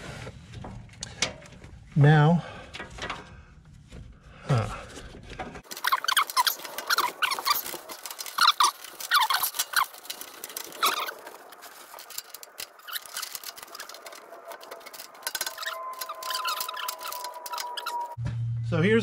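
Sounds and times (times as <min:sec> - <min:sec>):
rubber hose coupling squeaking: 0:05.7 - 0:18.2.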